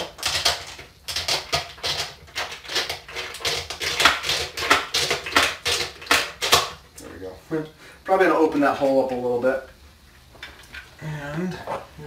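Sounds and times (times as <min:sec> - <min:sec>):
plastic scrapes and clicks: 0:00.0 - 0:06.7.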